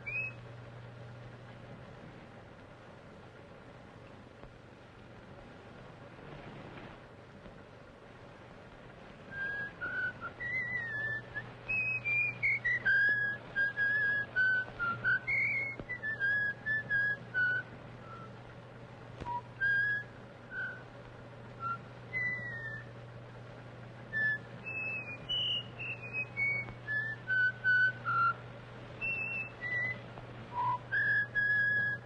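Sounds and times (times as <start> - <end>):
man whistling a tune: 0.0 - 0.4, 9.3 - 18.4, 19.2 - 20.9, 21.6 - 22.9, 24.1 - 28.4, 29.0 - 32.0
steady low hum: 0.0 - 32.0.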